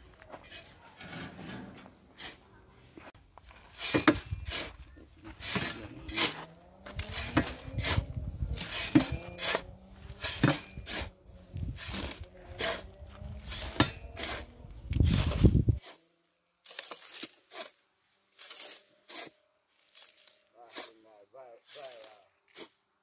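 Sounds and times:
shovelling gravel into wheelbarrow: 0.0s - 16.0s, 16.6s - 22.8s.

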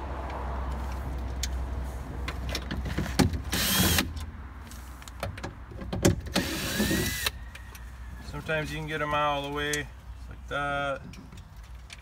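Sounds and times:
cordless drill whirring: 3.6s - 4.0s, 6.4s - 7.4s.

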